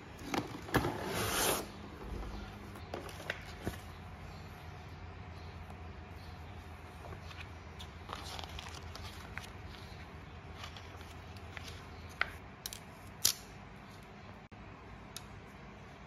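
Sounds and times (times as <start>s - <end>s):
low steady hum: 0.0s - 16.0s
paper pages rustling: 7.0s - 12.4s.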